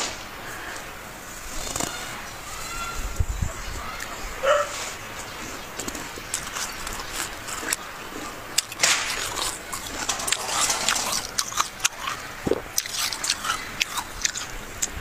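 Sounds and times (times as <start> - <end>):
snow being chewed: 4.6 - 15.0.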